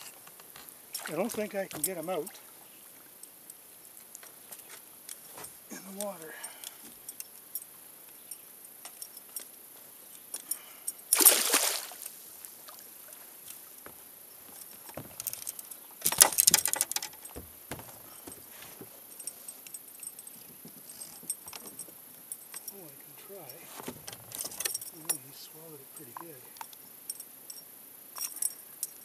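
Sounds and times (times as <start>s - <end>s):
fish splashing at water surface: 11.1s - 12.1s.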